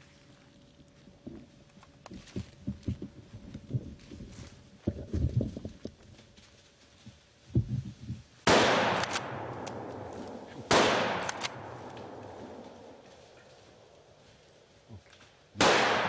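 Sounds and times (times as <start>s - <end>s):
rifle shots echoing: 8.4s - 13.0s, 15.6s - 16.0s.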